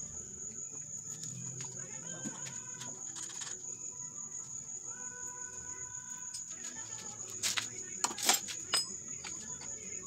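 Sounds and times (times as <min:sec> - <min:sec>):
crickets trilling: 0:00.0 - 0:10.0.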